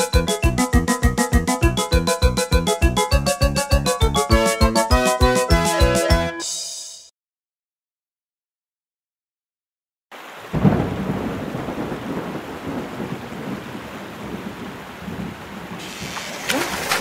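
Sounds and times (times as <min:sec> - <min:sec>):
heavy rain: 0:10.2 - 0:17.0
low rumble of thunder: 0:10.5 - 0:16.4.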